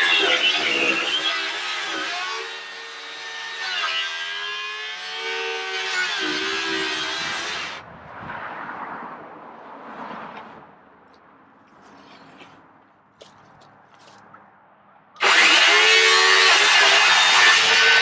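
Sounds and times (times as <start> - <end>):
power saw cutting wood: 0.0 - 7.8, 15.2 - 18.0.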